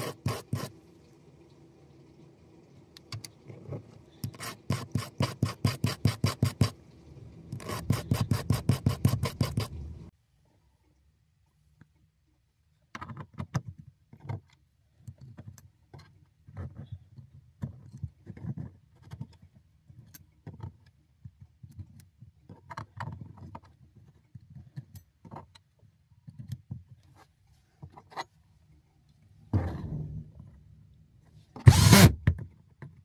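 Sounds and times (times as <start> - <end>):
small metal parts clicking and tapping: 12.9 - 27.2.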